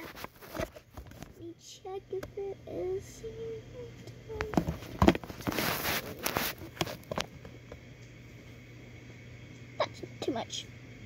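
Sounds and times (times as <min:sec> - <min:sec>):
rustling: 0:04.7 - 0:07.1.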